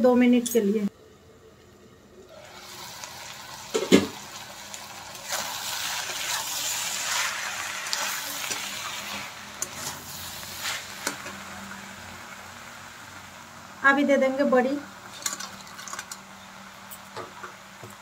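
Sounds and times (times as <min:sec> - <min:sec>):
vegetables sizzling in a pan: 0:02.3 - 0:18.0
metal spatula scraping a pan: 0:05.3 - 0:11.4.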